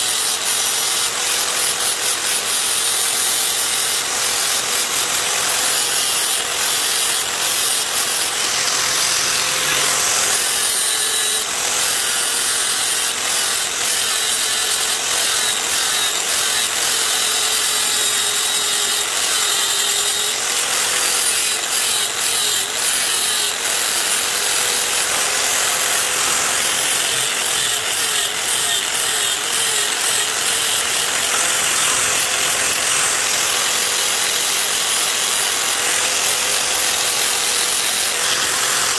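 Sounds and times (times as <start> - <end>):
angle grinder grinding metal: 0.0 - 38.9.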